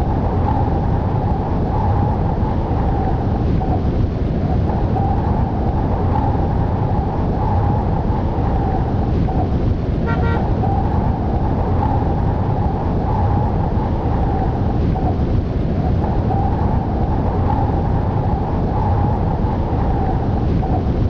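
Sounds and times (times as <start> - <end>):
road traffic noise: 0.0 - 20.7
short horn toot: 10.0 - 10.5.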